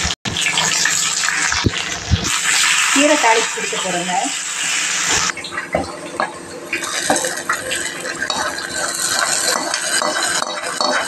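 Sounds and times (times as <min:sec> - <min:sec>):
hot oil sizzling: 0:00.0 - 0:05.4, 0:06.4 - 0:11.0
metal spoon scraping pan: 0:08.3 - 0:11.0.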